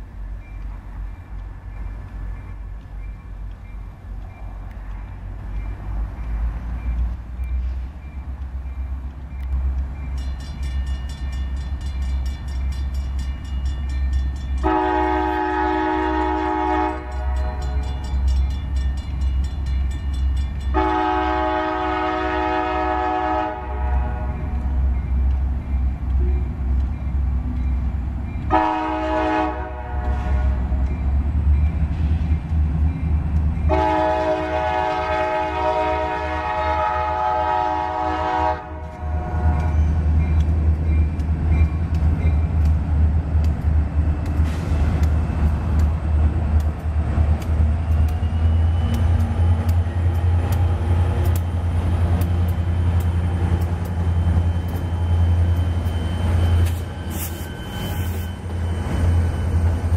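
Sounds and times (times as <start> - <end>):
crossing warning bell ringing: 0.3 - 23.5, 37.4 - 42.7, 48.0 - 59.9
locomotive air horn blasts: 14.6 - 17.8, 20.7 - 24.5, 28.5 - 30.7, 33.7 - 39.8.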